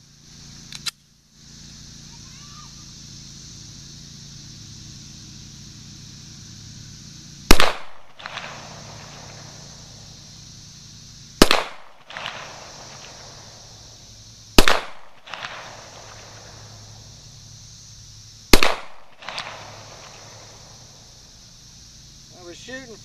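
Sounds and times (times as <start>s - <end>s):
pistol shots with echo: 7.5s - 8.6s, 11.4s - 12.4s, 14.6s - 15.6s, 18.6s - 19.5s.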